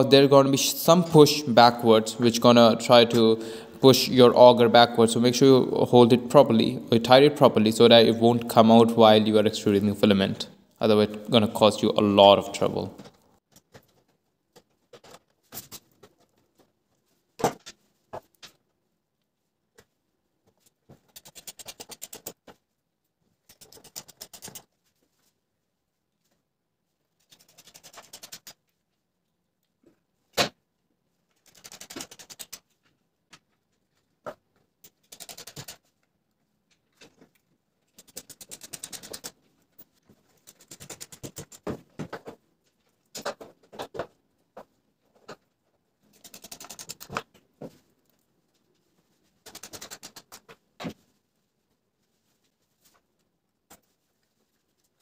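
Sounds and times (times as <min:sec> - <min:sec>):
screwdriver tightening screws: 0:34.8 - 0:35.8, 0:38.0 - 0:39.3, 0:46.1 - 0:47.2.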